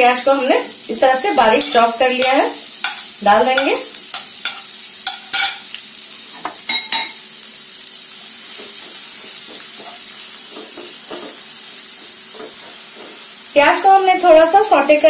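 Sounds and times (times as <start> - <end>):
onion sizzling in frying pan: 0.0 - 15.0
spatula clattering and scraping: 1.5 - 5.7, 8.5 - 13.2.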